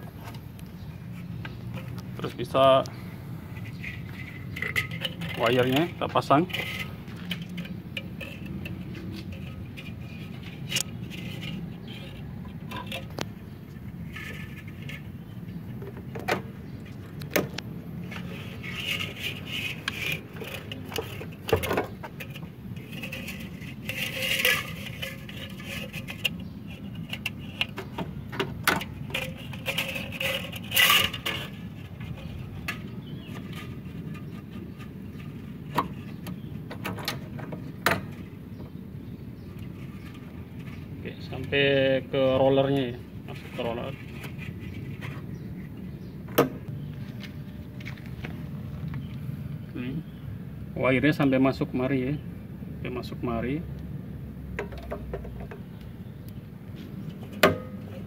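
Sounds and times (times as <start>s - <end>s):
metallic clicks and rattles: 3.6s - 13.3s.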